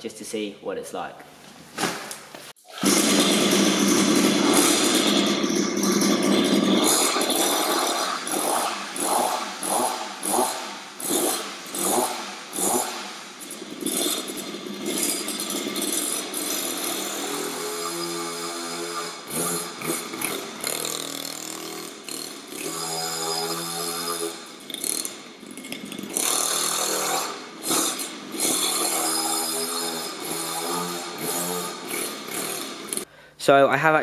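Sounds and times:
minibike engine starting and running: 0:02.7 - 0:17.7.

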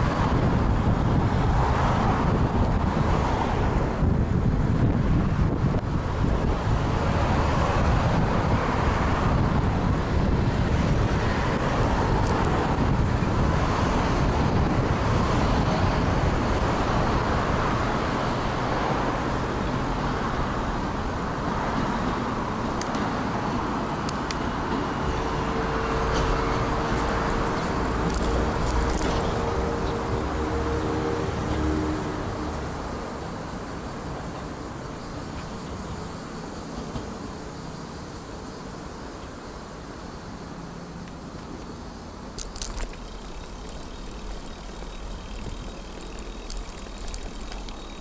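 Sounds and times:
wind rumble: 0:00.0 - 0:34.3
road traffic noise: 0:00.0 - 0:48.0
steady hum: 0:41.5 - 0:48.0.

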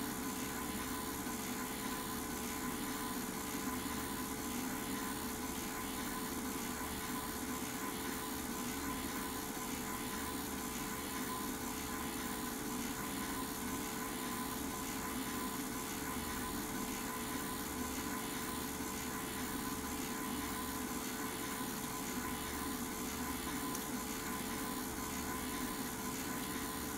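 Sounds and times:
film projector running: 0:00.0 - 0:26.9.

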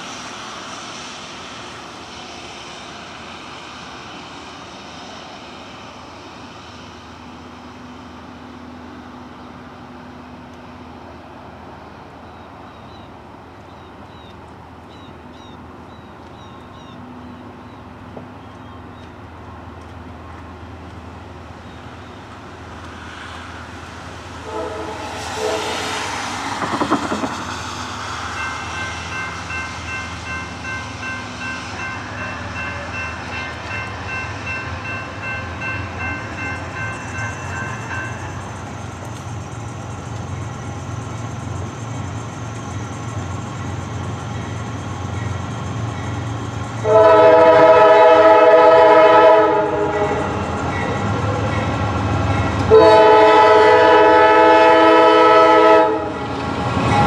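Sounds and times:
diesel locomotive rumble: 0:00.0 - 0:57.0
locomotive air horn: 0:24.4 - 0:26.0, 0:46.8 - 0:50.4, 0:52.7 - 0:56.2.

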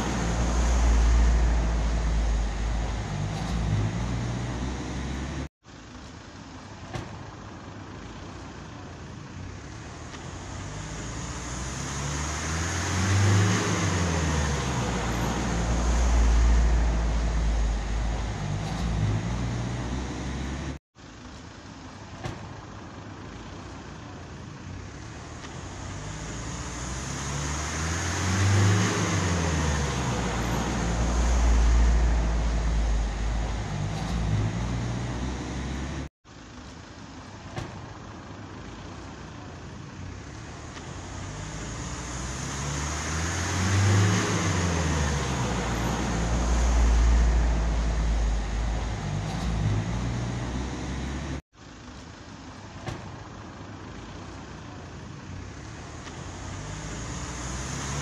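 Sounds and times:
motor vehicle passing: 0:09.9 - 0:20.8, 0:25.2 - 0:36.1, 0:40.4 - 0:51.4.

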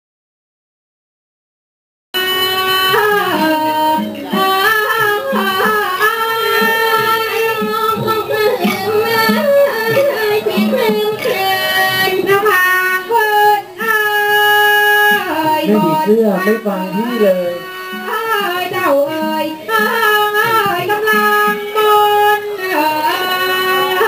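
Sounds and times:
instrumental accompaniment: 0:02.2 - 0:24.0
person singing held notes: 0:15.6 - 0:17.6.

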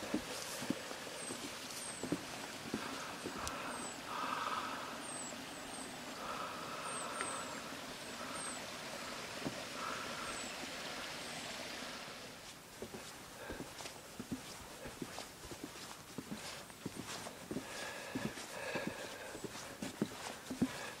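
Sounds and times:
bird chirping: 0:00.0 - 0:02.2, 0:02.8 - 0:09.2
footsteps on wooden boardwalk: 0:00.0 - 0:04.8, 0:06.1 - 0:07.6, 0:08.2 - 0:10.3, 0:12.3 - 0:21.0.

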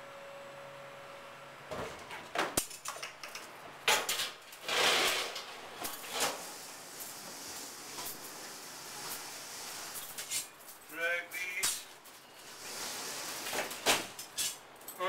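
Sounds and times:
sliding scrape: 0:04.6 - 0:10.5, 0:12.4 - 0:14.6.

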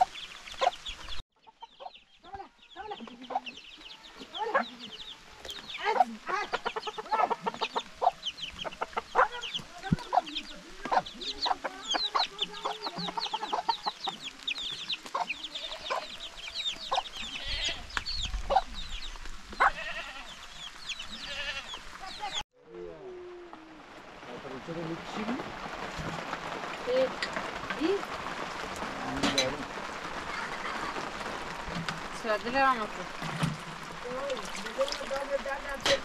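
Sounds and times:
hens clucking: 0:00.0 - 0:18.8, 0:19.5 - 0:22.4
chicks peeping: 0:00.0 - 0:22.4.

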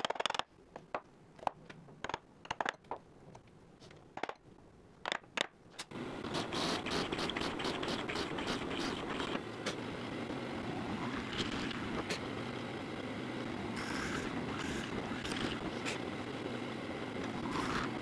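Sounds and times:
drill press boring wood: 0:06.2 - 0:09.4.

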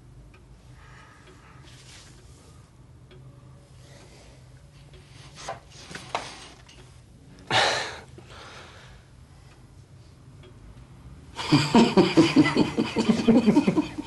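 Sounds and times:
open laughter: 0:11.4 - 0:14.0.

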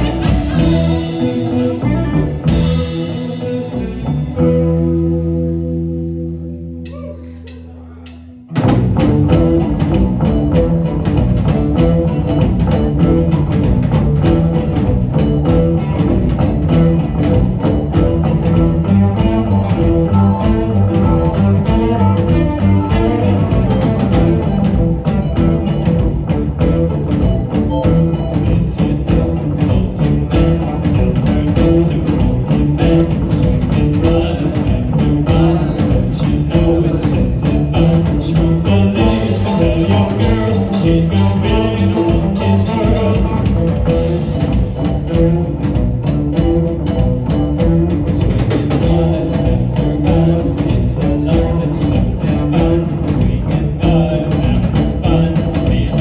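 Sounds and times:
drum kit: 0:00.0 - 0:56.0
electric guitars: 0:00.0 - 0:56.0
rock band playing: 0:00.0 - 0:56.0.

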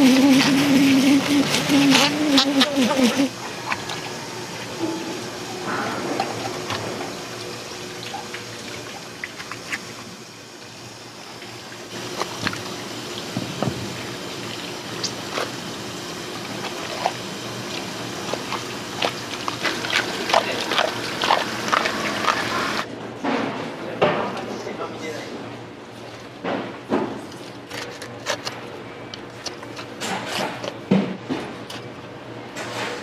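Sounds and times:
water running at sink: 0:00.0 - 0:22.9.

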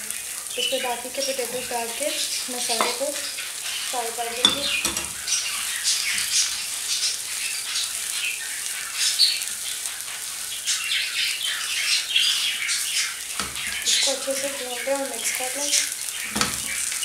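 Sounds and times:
hot oil sizzling: 0:00.0 - 0:17.0
wooden spatula scraping a pan: 0:00.5 - 0:08.2.

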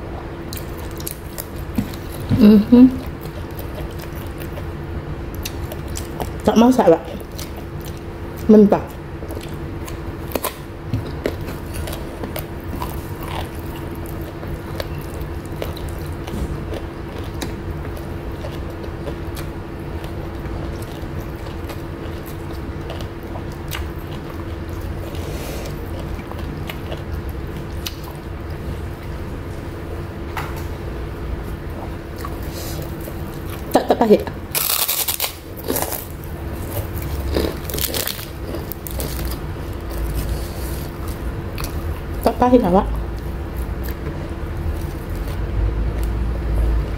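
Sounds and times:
low background hum: 0:00.0 - 0:46.9
chewing raw eggplant: 0:00.4 - 0:29.8, 0:31.4 - 0:46.9.

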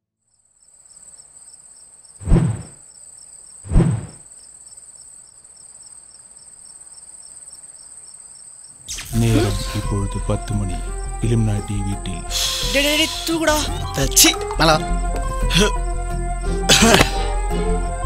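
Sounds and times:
crickets chirping: 0:00.2 - 0:18.0
heavy thuds: 0:02.2 - 0:02.8, 0:03.7 - 0:04.2.

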